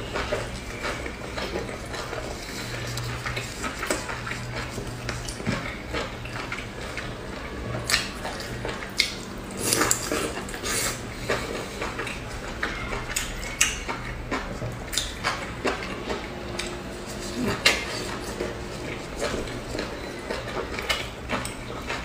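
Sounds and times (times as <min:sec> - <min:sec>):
wet chewing and mouth smacks: 0:07.8 - 0:22.0.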